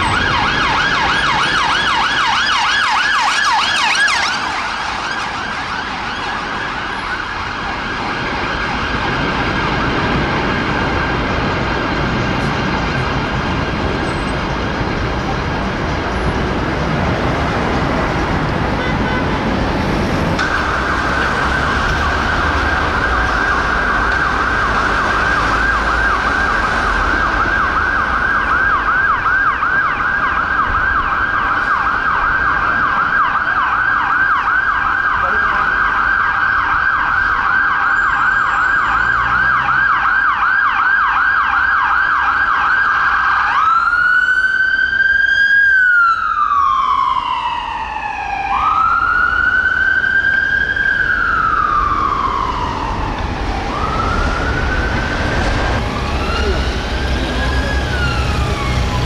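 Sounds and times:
ambulance siren: 0.0s - 59.0s.

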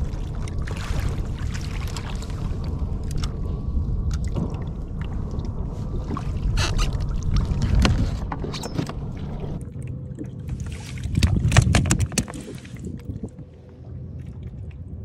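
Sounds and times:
water splashes: 0.0s - 15.0s
wind and sea rumble: 0.0s - 15.0s
knocks and clicks: 11.2s - 12.4s.

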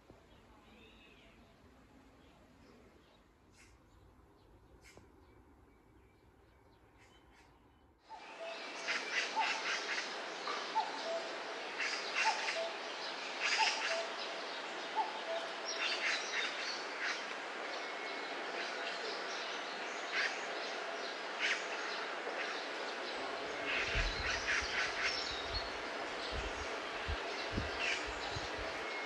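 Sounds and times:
birds chirping: 0.2s - 29.0s
steady hiss: 8.1s - 29.0s.

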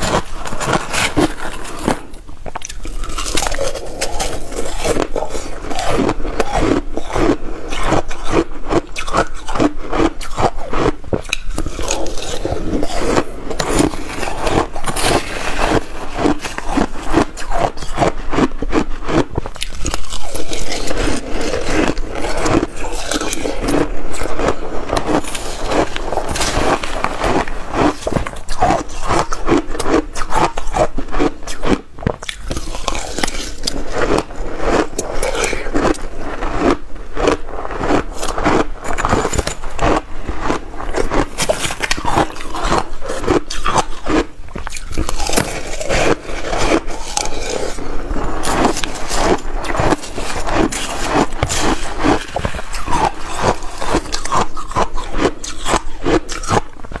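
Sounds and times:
crushed ice crunching: 0.0s - 56.6s
spoon scraping ice in bowl: 44.8s - 55.8s.

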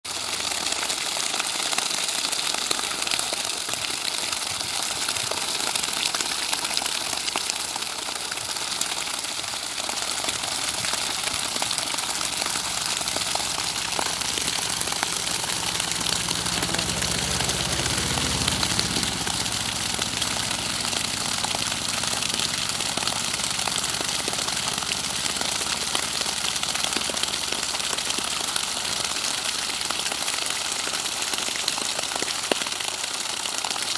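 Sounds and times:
water pouring and splashing: 0.0s - 33.9s
low hum: 11.0s - 25.2s.

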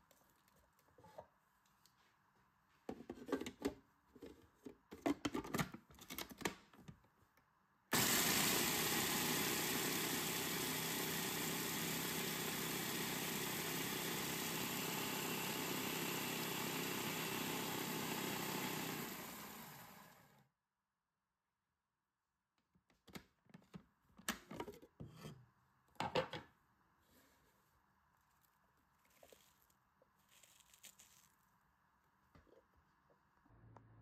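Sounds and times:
food processor motor grinding: 7.9s - 20.4s.

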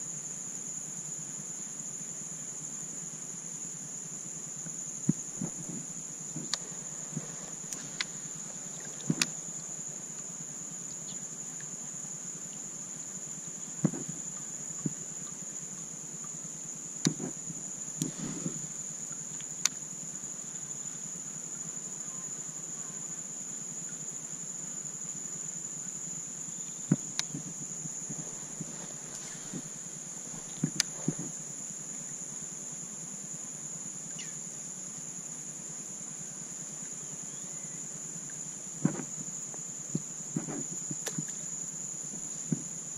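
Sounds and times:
insects droning: 0.0s - 42.9s
gear knocking in plastic kayak: 26.9s - 31.4s.

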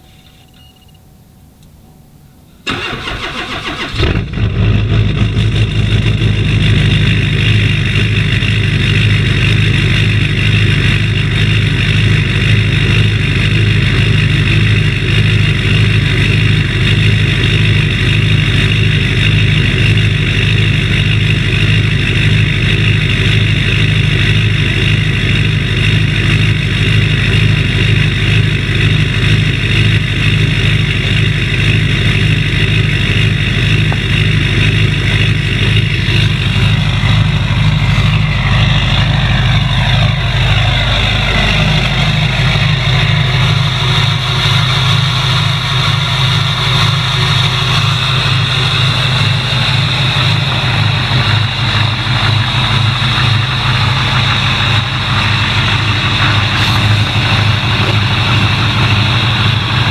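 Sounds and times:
diesel engine idling: 1.0s - 59.9s
starter motor cranking: 2.7s - 4.4s.

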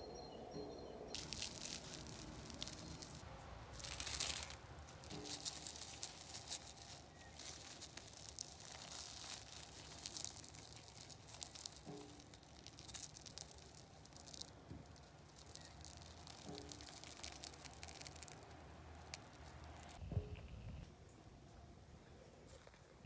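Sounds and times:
breadcrumb crust crackling and tearing: 1.2s - 20.0s.

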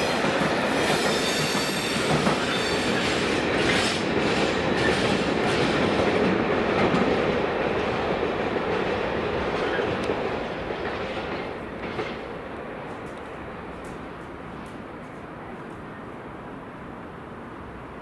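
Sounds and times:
train wheel squeal: 0.0s - 5.6s.

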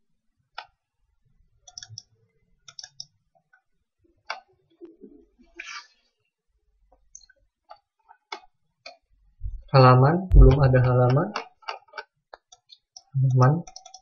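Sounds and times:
computer mouse clicks: 1.6s - 3.2s, 11.3s - 14.0s.

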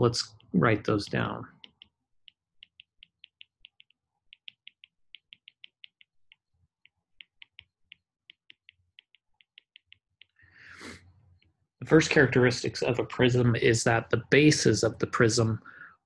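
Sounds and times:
stylus tapping on glass screen: 1.5s - 10.4s.

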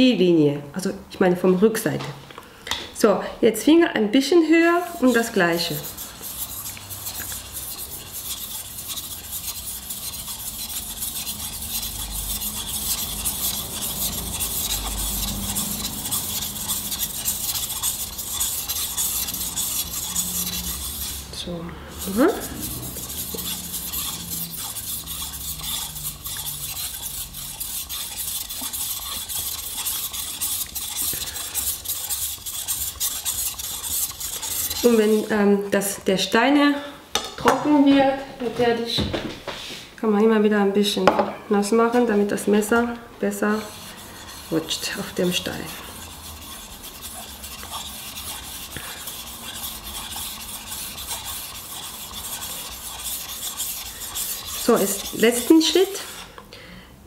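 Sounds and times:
knife scraping on whetstone: 4.8s - 35.3s, 43.4s - 56.3s.

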